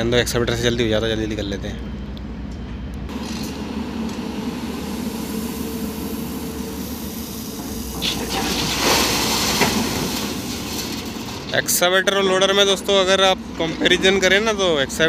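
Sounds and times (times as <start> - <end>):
diesel engine running: 3.1 - 15.0
crushed stone pouring into truck bed: 8.0 - 11.6.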